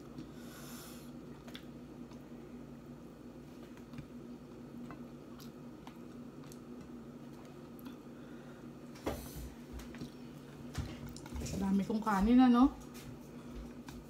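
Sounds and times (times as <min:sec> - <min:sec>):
chewing: 0:01.3 - 0:02.2, 0:04.8 - 0:08.0.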